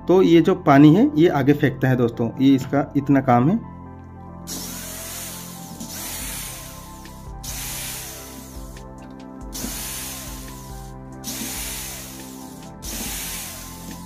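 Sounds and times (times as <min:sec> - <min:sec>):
cordless drill running: 0:04.5 - 0:14.0.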